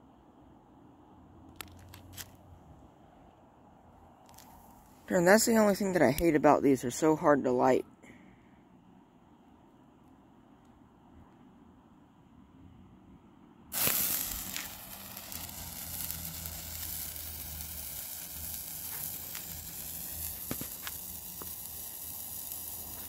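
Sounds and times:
sparkler hissing and crackling: 0:13.7 - 0:23.0.

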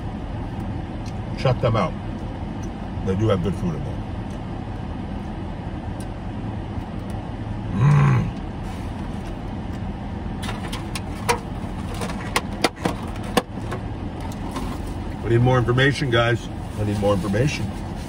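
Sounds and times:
car air conditioning hum: 0:00.0 - 0:18.0
person humming mm: 0:07.7 - 0:08.4.

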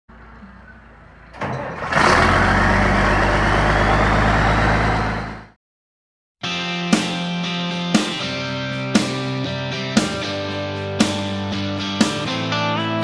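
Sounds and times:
diesel tractor engine starting: 0:00.1 - 0:05.6.

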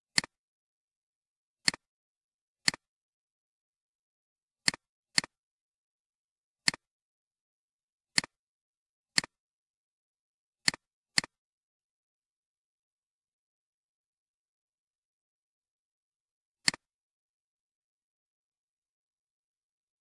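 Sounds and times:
computer mouse clicking: 0:01.6 - 0:01.9, 0:06.6 - 0:06.9, 0:08.2 - 0:08.4, 0:09.2 - 0:09.4, 0:16.6 - 0:16.9.

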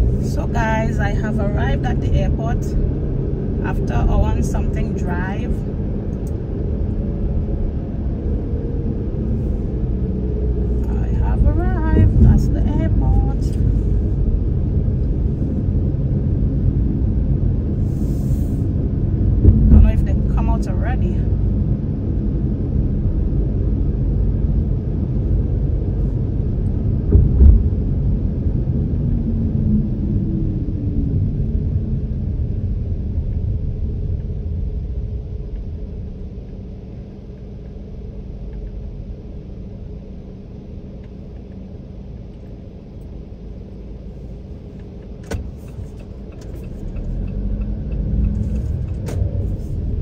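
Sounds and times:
road and engine rumble in car: 0:00.0 - 0:50.0
loud thump: 0:19.4 - 0:20.0, 0:27.1 - 0:27.8.

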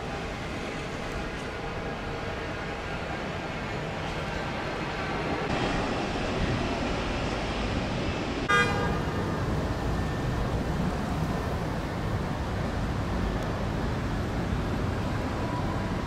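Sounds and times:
low rumble of traffic: 0:00.0 - 0:16.0
car horn toot: 0:08.5 - 0:09.3.

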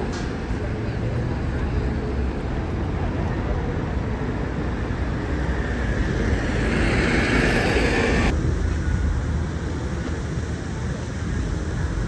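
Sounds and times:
low traffic rumble: 0:00.0 - 0:12.0
vehicle passing: 0:01.2 - 0:08.4.

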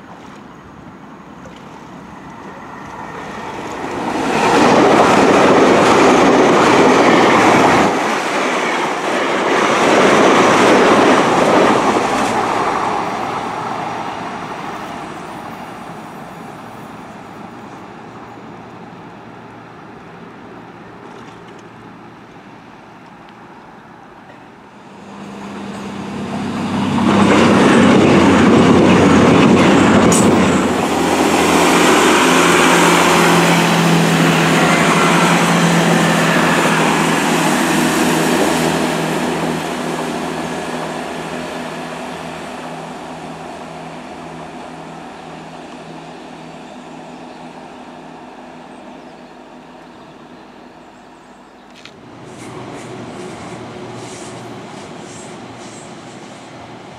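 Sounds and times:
train engines low drone: 0:00.0 - 0:56.9
train wheels clattering on rails: 0:01.4 - 0:13.6, 0:25.7 - 0:40.6.

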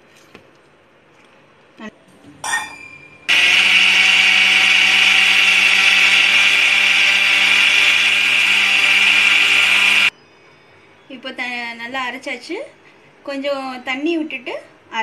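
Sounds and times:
mixer grinder motor whine: 0:03.3 - 0:10.1.

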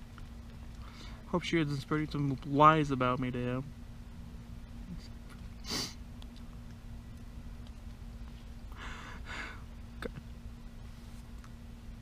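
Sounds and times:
faint steady hum: 0:00.0 - 0:12.0
man breathing: 0:00.8 - 0:01.3, 0:08.7 - 0:09.7
man sniffing: 0:05.6 - 0:06.0, 0:08.7 - 0:09.6.

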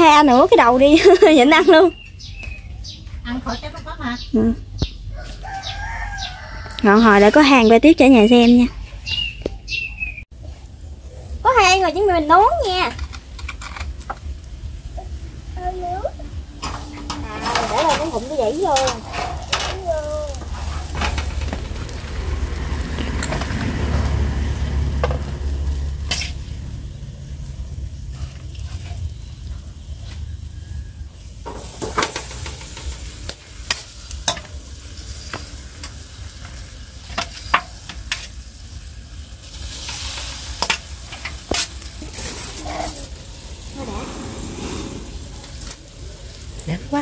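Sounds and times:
meat sizzling on a grill: 0:04.9 - 0:08.6, 0:10.4 - 0:47.0
low rumble: 0:14.3 - 0:31.1
metal tongs clicking on grill: 0:31.5 - 0:34.6.

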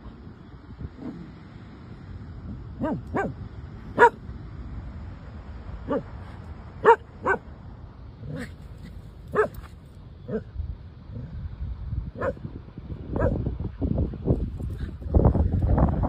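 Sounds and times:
dog barking: 0:02.8 - 0:03.4, 0:04.0 - 0:04.2, 0:05.9 - 0:06.1, 0:06.8 - 0:07.4, 0:09.3 - 0:09.6, 0:12.2 - 0:12.4, 0:13.2 - 0:13.4.

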